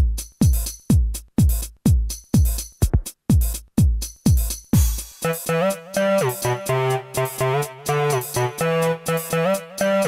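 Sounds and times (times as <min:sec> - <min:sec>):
deep kick drum: 0:00.0 - 0:05.2
hissy hi-hats: 0:00.0 - 0:06.3.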